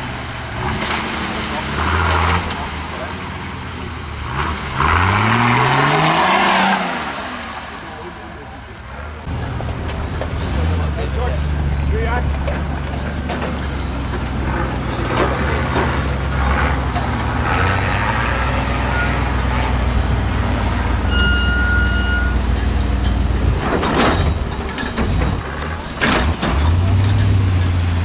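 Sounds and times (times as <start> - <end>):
truck engine running: 0.0 - 5.1, 7.8 - 28.0
high whistle-like tone: 21.1 - 22.7.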